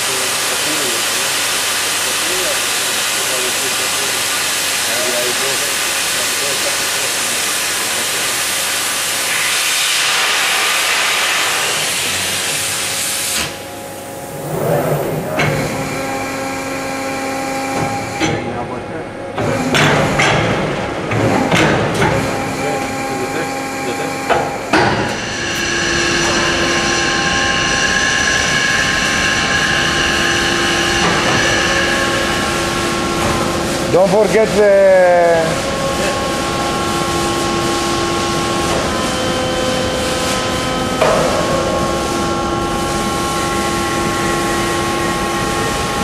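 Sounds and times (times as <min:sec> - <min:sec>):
cutting torch hissing: 0:00.0 - 0:16.8, 0:25.0 - 0:37.3
machinery drone with whining tones: 0:00.0 - 0:46.0.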